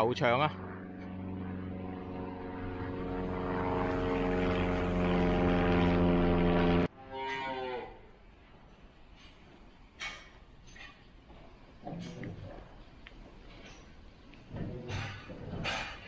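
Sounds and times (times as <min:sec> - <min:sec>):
engine droning: 0:00.0 - 0:06.9
cow mooing: 0:07.0 - 0:08.1.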